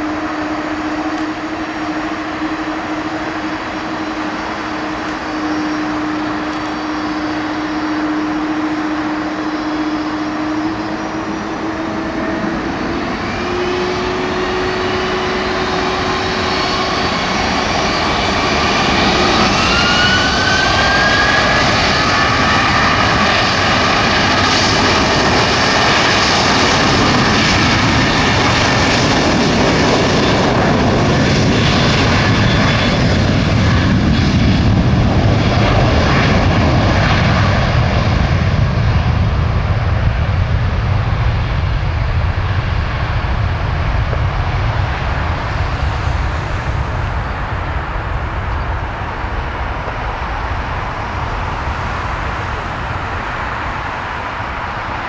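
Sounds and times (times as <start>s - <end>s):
whine rising in pitch: 0.0s - 40.0s
jet engines roaring: 0.0s - 55.0s.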